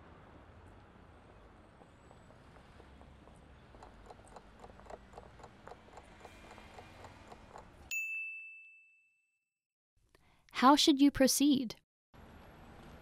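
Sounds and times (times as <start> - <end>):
rapid timer ticking: 2.0 - 7.9
bright ding: 7.9 - 9.4.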